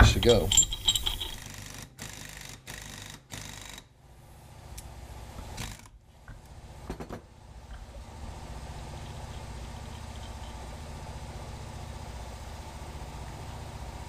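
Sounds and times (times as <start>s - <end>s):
impact wrench bursts: 0.0s - 3.9s
low steady hum: 4.2s - 14.0s.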